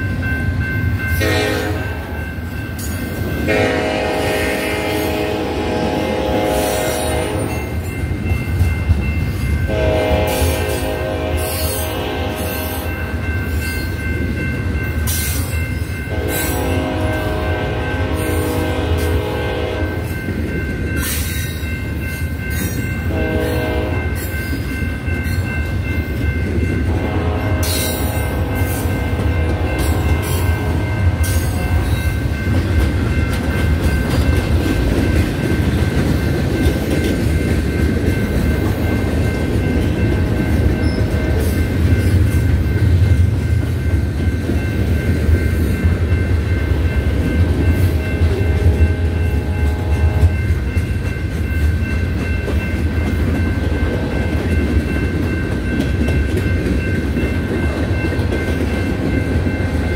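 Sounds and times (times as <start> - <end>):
freight train rumbling: 0.0 - 59.9
wheels ringing on rail: 0.0 - 59.9
train horn: 1.2 - 2.2, 3.4 - 7.7, 9.7 - 13.0, 16.1 - 20.1, 23.1 - 24.3, 26.8 - 32.2, 47.9 - 50.6.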